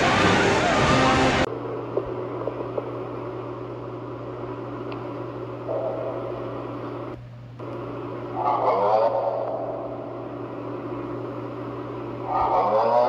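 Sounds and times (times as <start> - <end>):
loud wavering sound: 0.0 - 1.5
low droning hum with hiss: 0.0 - 13.0.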